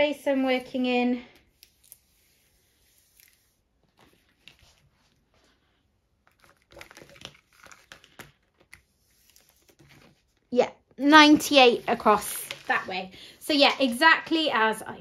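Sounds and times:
plastic film crinkling: 6.2s - 14.6s.

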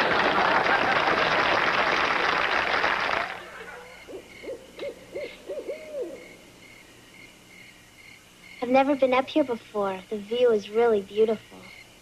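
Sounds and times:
crowd applause: 0.0s - 4.0s
crickets chirping: 0.1s - 12.0s
owl hooting: 3.4s - 6.9s.

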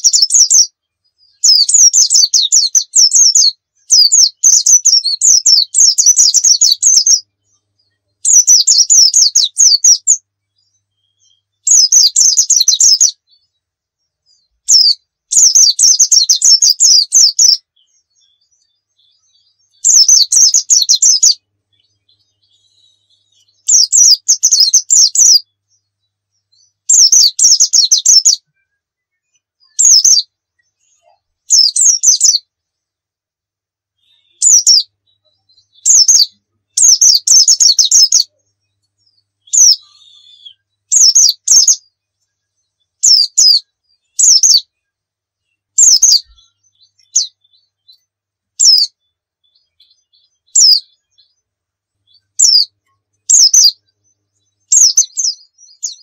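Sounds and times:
bird chirping and twittering: 0.0s - 33.0s, 34.0s - 56.0s.

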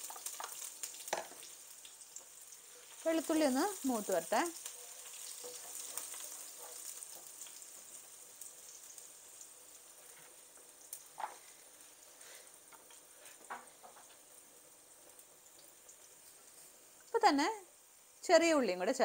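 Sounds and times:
garlic sizzling in oil: 0.0s - 19.0s.

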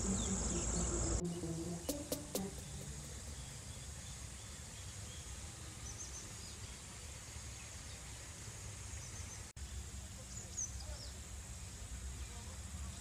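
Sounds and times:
low steady rumble: 0.0s - 5.5s.

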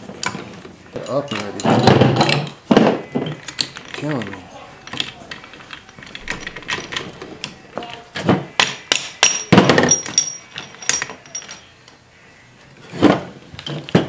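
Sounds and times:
metal gears clinking and knocking: 1.0s - 2.6s, 3.2s - 7.7s, 8.6s - 11.7s.

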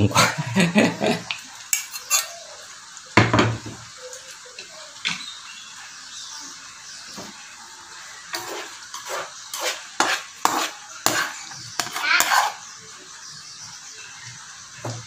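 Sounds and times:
food sizzling in pan: 0.2s - 15.0s
metal utensil scraping pan: 1.7s - 2.4s, 8.3s - 12.7s.

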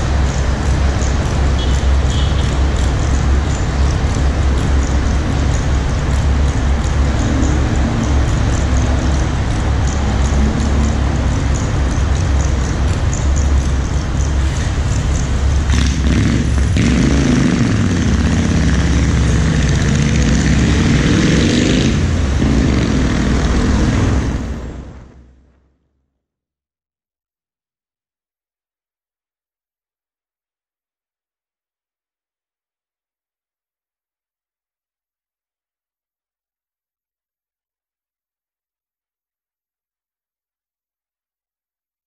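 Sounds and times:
car engine rumbling and accelerating: 0.0s - 25.7s.

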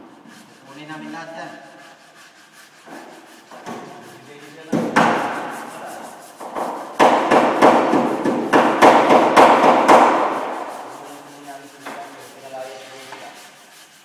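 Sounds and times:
hammer striking steel panel: 6.4s - 10.8s.

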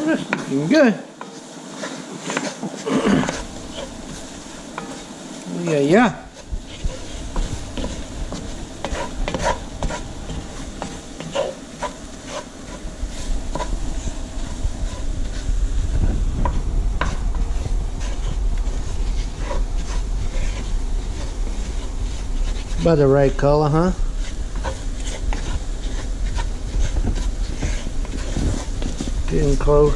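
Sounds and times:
low sizzle: 0.0s - 29.9s
utensil scraping a pan: 0.0s - 29.9s
low rumble: 12.9s - 24.6s.

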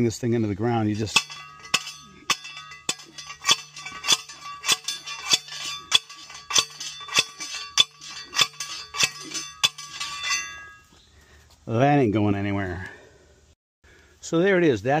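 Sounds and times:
post driver clanging on metal stake: 0.8s - 10.9s.

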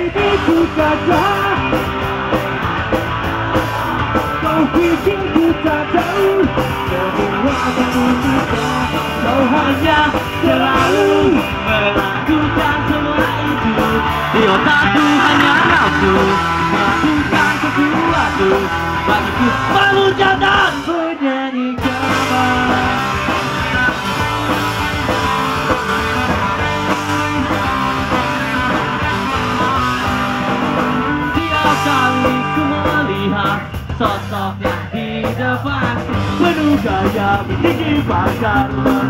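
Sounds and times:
person singing: 0.0s - 1.9s, 4.2s - 23.9s, 31.2s - 39.0s
bass guitar: 0.0s - 39.0s
drum kit: 0.0s - 39.0s
electric guitars: 0.0s - 39.0s.

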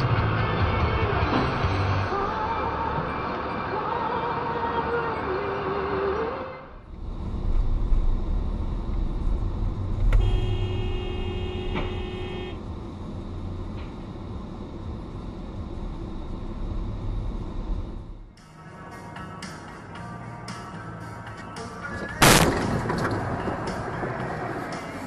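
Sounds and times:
car engine and road rumble: 0.0s - 25.0s
car horn blast: 10.0s - 12.6s.

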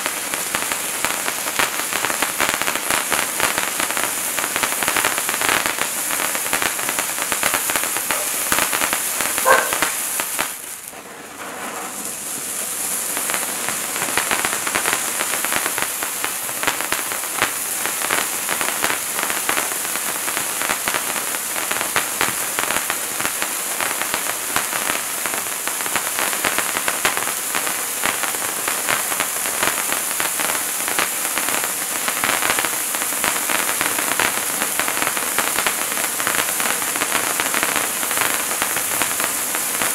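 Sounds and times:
firework sparks crackling hiss: 0.0s - 39.9s.

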